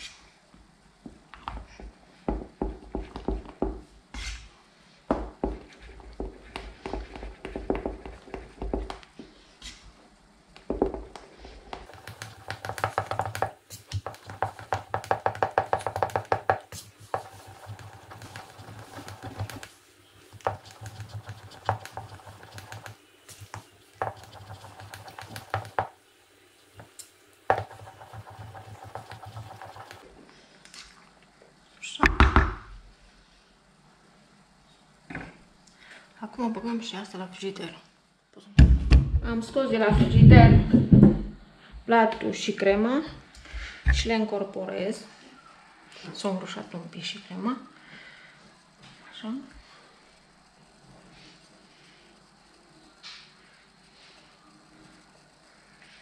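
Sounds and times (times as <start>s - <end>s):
spoon stirring in a bowl: 11.8s - 26.0s, 26.8s - 30.0s.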